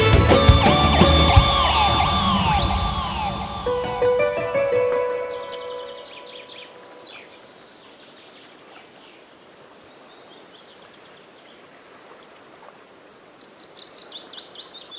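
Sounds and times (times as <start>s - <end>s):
background music: 0.0s - 6.7s
soft outdoor hiss: 2.8s - 14.9s
small birds chirping: 4.3s - 11.7s, 12.8s - 14.9s.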